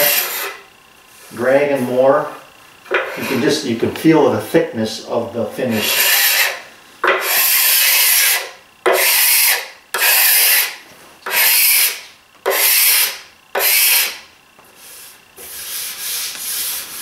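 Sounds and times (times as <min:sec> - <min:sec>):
card scraper rasping on wood: 0:00.0 - 0:00.6, 0:05.7 - 0:14.2.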